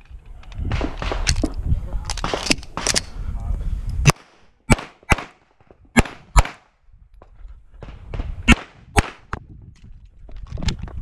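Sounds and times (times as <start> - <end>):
pistol shots: 4.1 - 6.6, 7.8 - 9.3.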